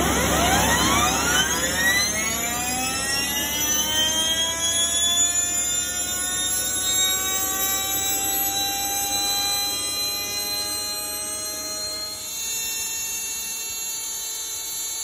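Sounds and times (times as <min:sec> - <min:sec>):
rising whistling tone: 0:00.0 - 0:13.8.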